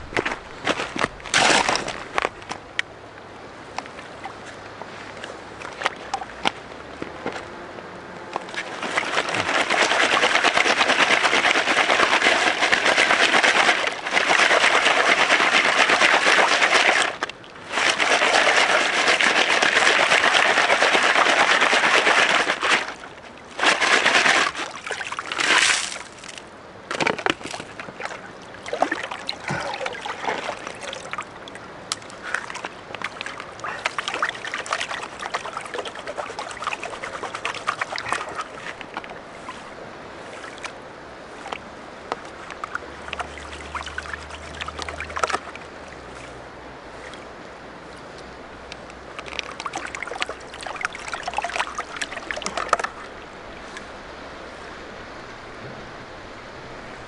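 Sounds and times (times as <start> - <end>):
water sloshing and splashing: 0.0 - 2.7, 3.7 - 54.8
water swishing in plastic pan: 8.4 - 26.4, 27.1 - 31.3, 32.0 - 47.3, 49.1 - 54.0.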